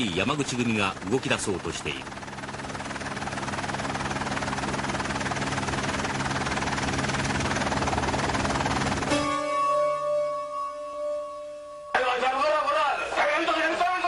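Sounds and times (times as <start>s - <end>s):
helicopter engine and rotor: 0.0s - 9.5s
held musical note: 9.0s - 12.8s.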